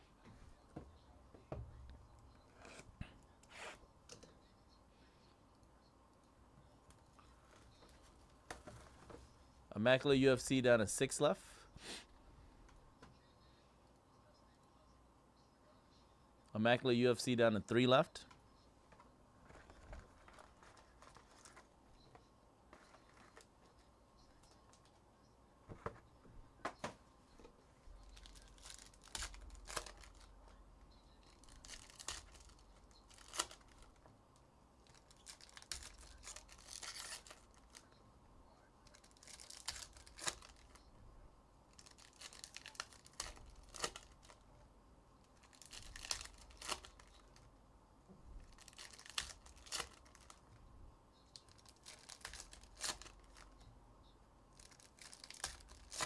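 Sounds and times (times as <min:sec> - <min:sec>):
foil wrappers tearing and crinkling: 0:28.1 - 0:30.3, 0:31.3 - 0:33.9, 0:34.8 - 0:37.9, 0:38.9 - 0:40.8, 0:41.8 - 0:44.4, 0:45.4 - 0:47.2, 0:48.4 - 0:50.4, 0:51.3 - 0:53.6, 0:54.6 - 0:56.0.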